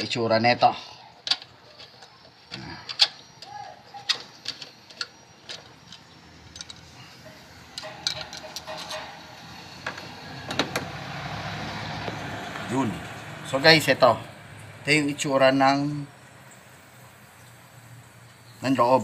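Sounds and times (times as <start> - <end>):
light clicks and knocks of metal parts: 1.2 - 9.2.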